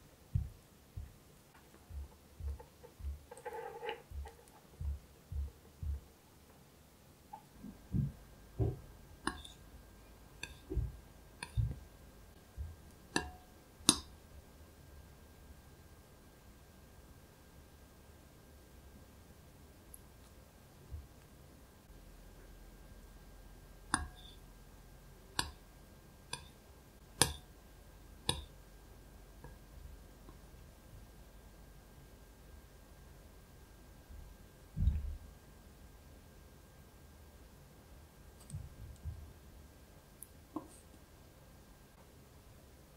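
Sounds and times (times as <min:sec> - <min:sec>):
soft dull knocks: 0:00.4 - 0:01.2, 0:01.8 - 0:03.4, 0:04.1 - 0:06.1, 0:07.6 - 0:08.9, 0:10.7 - 0:11.8
metal tool tapping glass bowl: 0:08.6 - 0:09.6, 0:10.4 - 0:11.8, 0:24.0 - 0:24.4, 0:26.4 - 0:26.6, 0:28.3 - 0:28.5.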